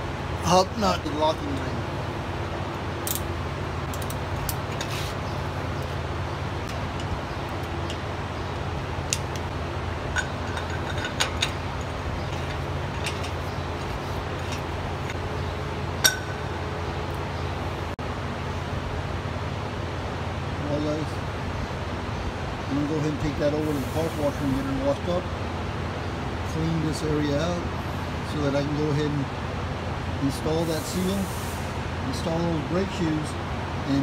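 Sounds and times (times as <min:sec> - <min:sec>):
steady low hum: 0:00.0 - 0:23.8
metallic clinks and taps: 0:10.1 - 0:15.2, 0:16.0 - 0:16.6.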